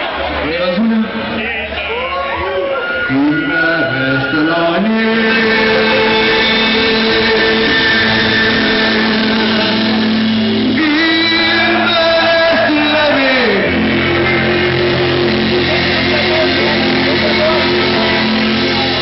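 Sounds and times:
live rock band playing: 0.2 - 19.0
person singing: 3.1 - 19.0.

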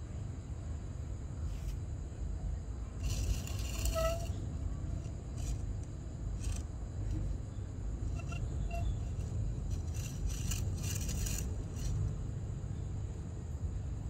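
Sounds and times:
steady low rumble: 0.0 - 14.0
faint short squeaks: 3.0 - 5.6, 8.0 - 12.1.

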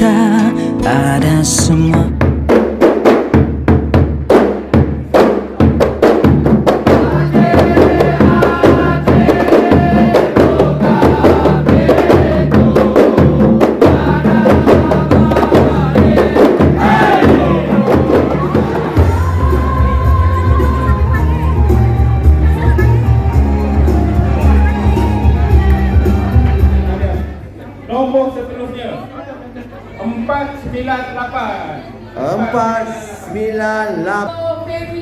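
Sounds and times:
bass drum struck with mallet: 1.5 - 21.2
frame drums beaten fast: 1.6 - 26.8
men chanting: 6.9 - 21.1.

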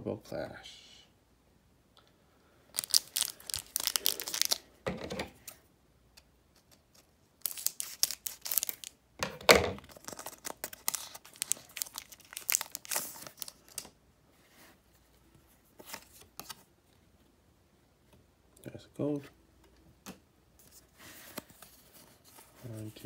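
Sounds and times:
foil wrapper crinkling and tearing: 2.7 - 4.7, 6.6 - 9.0, 9.8 - 13.9.

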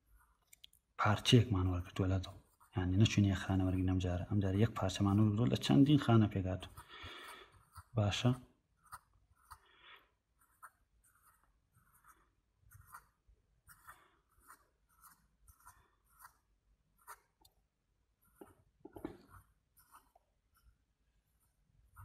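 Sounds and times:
pen scratching on paper: 0.0 - 0.5, 1.2 - 17.4, 18.2 - 22.0.

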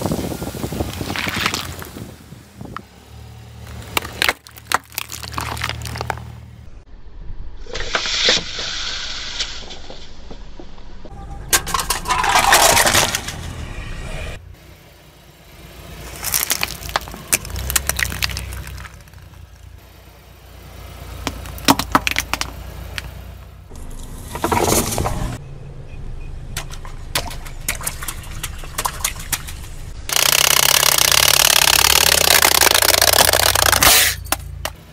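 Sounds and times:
low engine hum: 0.0 - 7.6, 13.1 - 34.9
plastic cracking and crunching: 4.0 - 6.2, 16.2 - 19.3, 30.1 - 33.9.

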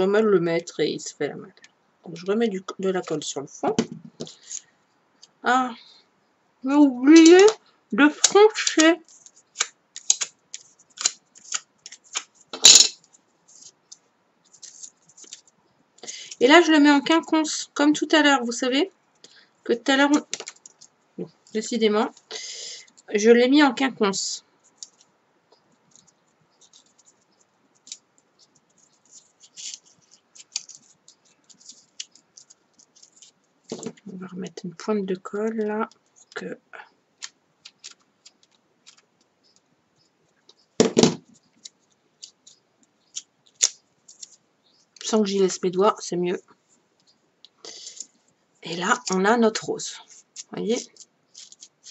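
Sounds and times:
paper petals rustling and crinkling: 8.6 - 15.6, 25.9 - 34.1, 47.8 - 51.9
paper petals crumpling: 27.8 - 33.9, 50.1 - 51.9.

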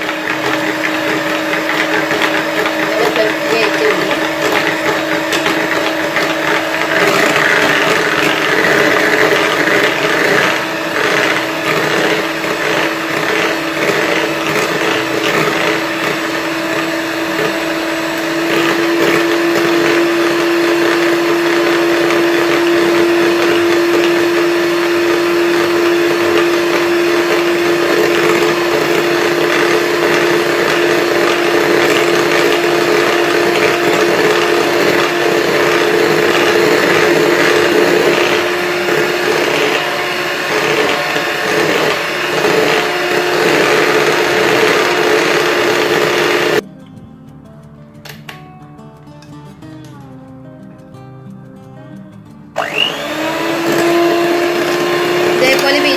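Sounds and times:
electric hand mixer whipping cream: 0.0 - 46.6, 52.6 - 55.9.

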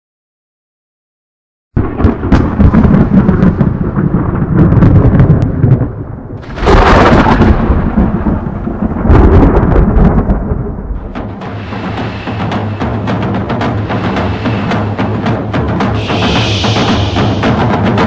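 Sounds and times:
thunder crash: 1.8 - 18.0
thunder rumbling: 1.8 - 18.0.

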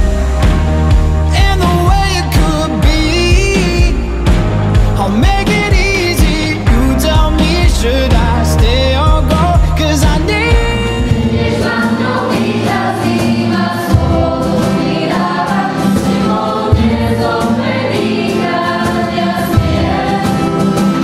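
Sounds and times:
steady bass notes: 0.0 - 11.8
choir singing sustained notes: 10.8 - 21.0.

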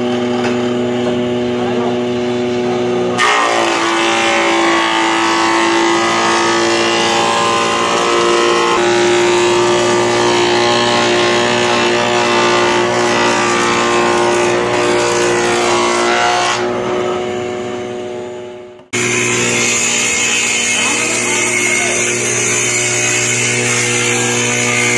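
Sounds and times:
woodworking machine whine: 0.0 - 24.9
saw cutting wood: 3.1 - 17.1, 18.9 - 24.9.

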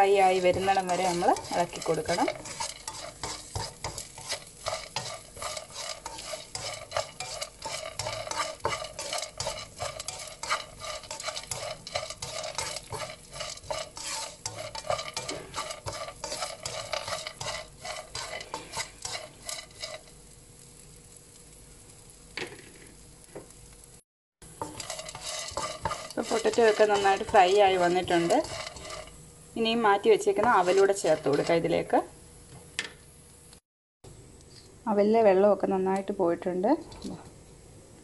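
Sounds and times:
spatula scraping a pan: 0.0 - 20.9, 24.4 - 31.9
food sizzling in oil: 0.0 - 32.5.

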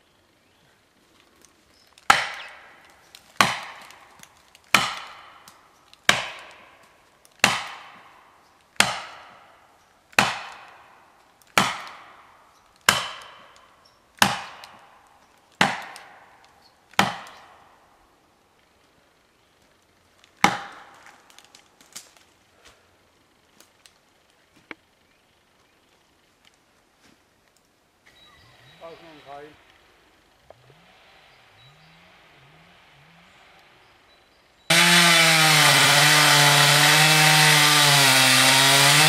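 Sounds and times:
hammer striking felling wedge: 2.1 - 8.2, 8.8 - 9.5, 10.2 - 10.8, 11.5 - 12.2, 12.8 - 13.6, 14.2 - 14.9, 15.6 - 16.3, 16.9 - 17.6, 20.4 - 21.5, 34.7 - 39.0.

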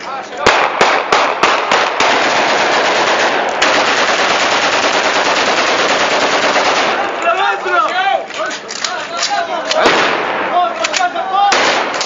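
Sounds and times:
rifle shots: 0.4 - 7.2, 9.7 - 12.0
rapid automatic gunfire: 0.5 - 7.0.

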